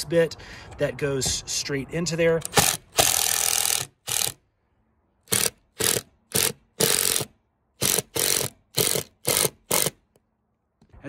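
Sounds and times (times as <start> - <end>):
impact driver hammering screw: 2.4 - 4.4, 5.3 - 10.1.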